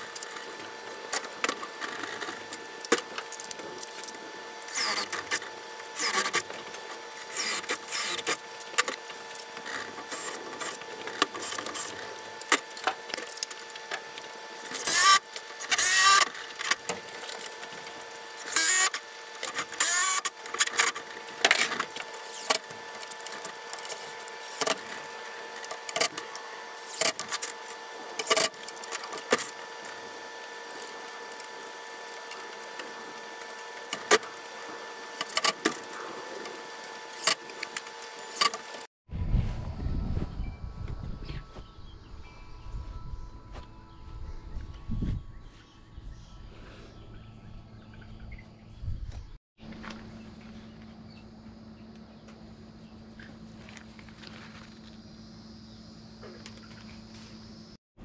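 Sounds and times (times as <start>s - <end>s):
cordless drill driving screws: 4.7s - 5.4s, 7.2s - 8.4s, 14.6s - 16.9s, 18.4s - 25.0s.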